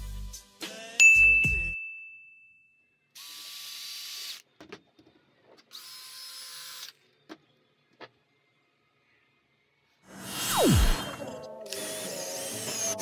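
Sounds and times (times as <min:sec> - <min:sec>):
cordless drill motor whining: 0:05.7 - 0:07.1, 0:10.1 - 0:13.0.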